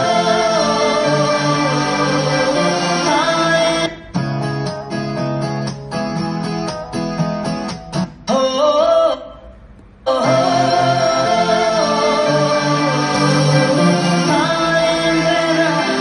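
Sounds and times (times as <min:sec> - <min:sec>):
person singing: 0:00.0 - 0:04.2, 0:08.3 - 0:09.4, 0:10.1 - 0:16.0.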